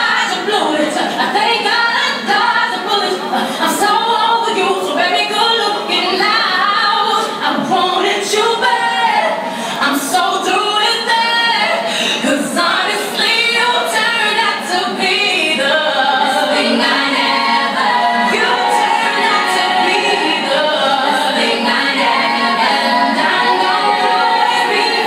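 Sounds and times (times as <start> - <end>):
song with female vocals over speakers: 0.0 - 25.0.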